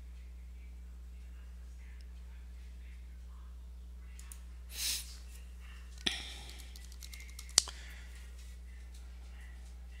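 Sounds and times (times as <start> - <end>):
steady low hum: 0.0 - 10.0
keyboard keys clicking: 6.4 - 7.7.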